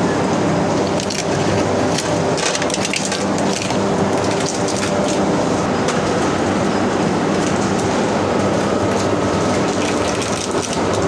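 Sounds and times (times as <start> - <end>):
machines humming: 0.0 - 11.0
coconut shells crackling: 9.6 - 11.0.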